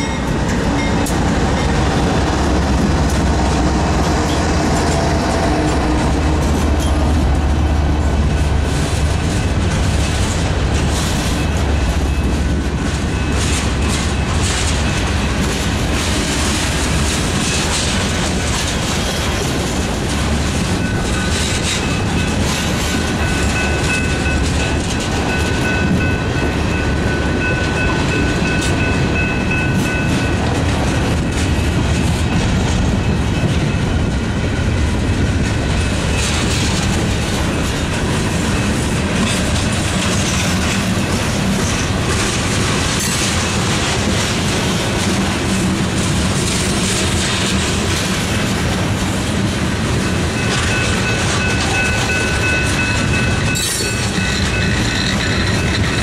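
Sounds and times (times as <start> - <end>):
freight train rumbling past: 0.0 - 56.0
wheels clacking over rail joints: 0.0 - 56.0.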